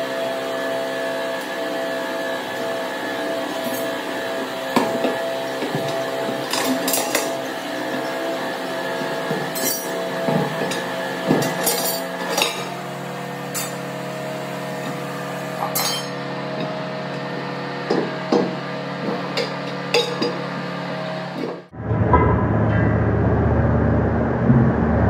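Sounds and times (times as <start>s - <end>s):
metal bars clinking on wheel rim: 9.6s - 10.0s, 11.6s - 12.7s, 15.7s - 16.2s.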